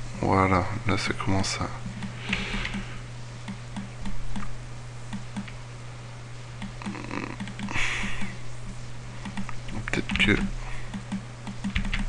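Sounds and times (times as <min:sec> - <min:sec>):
steady low hum: 0:00.0 - 0:12.0
mouse and keyboard clicking: 0:06.6 - 0:07.8, 0:09.2 - 0:12.0.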